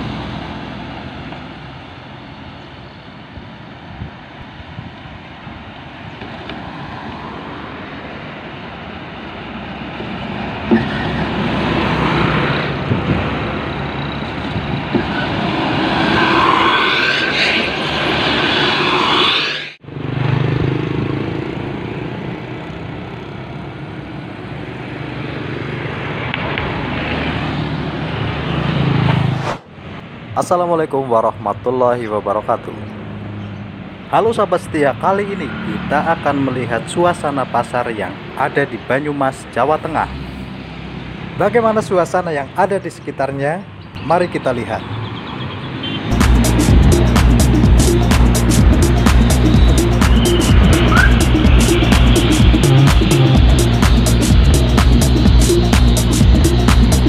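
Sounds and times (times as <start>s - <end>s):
cars driving past: 0.0s - 42.6s, 43.6s - 57.0s
buses driving past: 0.0s - 57.0s
motorcycles driving past: 9.2s - 29.6s.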